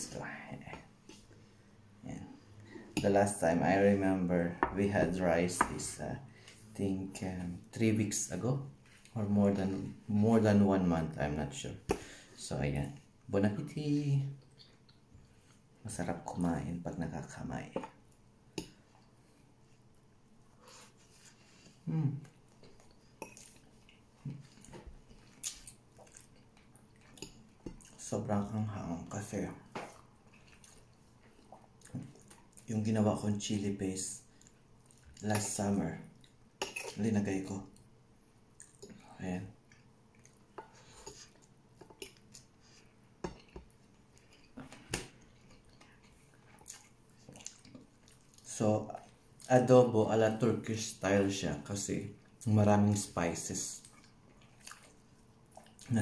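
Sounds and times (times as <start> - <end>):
chewing sounds: 22.5 - 28.0, 38.5 - 39.0, 39.6 - 49.5, 53.8 - 55.9.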